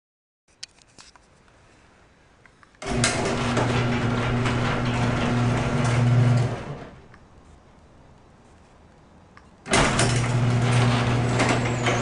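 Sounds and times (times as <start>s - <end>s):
garage door opener motor hum: 2.8s - 7.1s, 9.7s - 12.0s.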